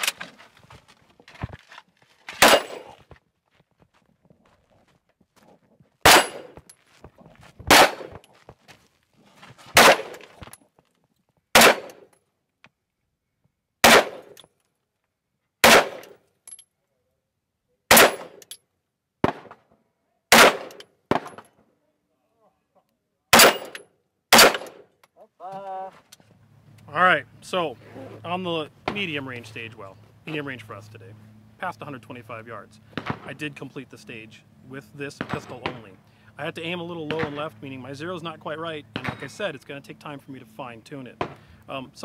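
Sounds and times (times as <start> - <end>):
pistol shots: 2.4 - 3.0, 6.0 - 6.6, 7.7 - 8.2, 9.8 - 10.3, 11.5 - 12.1, 13.8 - 14.4, 15.6 - 16.2, 17.9 - 18.4, 19.2 - 19.6, 20.3 - 21.4, 23.3 - 24.8, 37.1 - 37.4.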